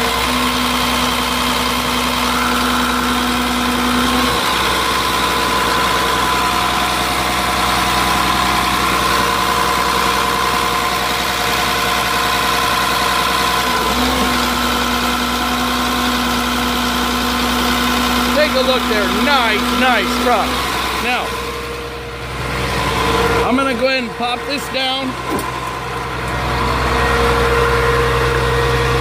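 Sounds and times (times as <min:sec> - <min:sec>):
diesel engine idling: 0:00.0 - 0:29.0.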